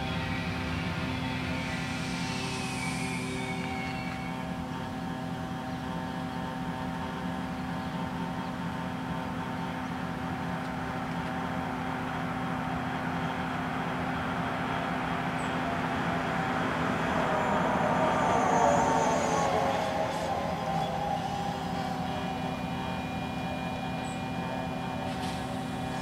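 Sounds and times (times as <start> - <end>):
rushing noise: 0.0 - 5.7, 10.9 - 26.0
train approaching with low hum: 0.0 - 26.0.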